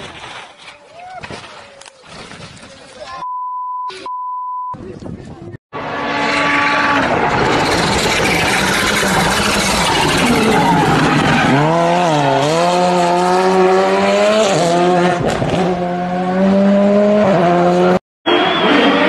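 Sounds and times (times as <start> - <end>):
rally car engine revving: 5.8 - 19.0.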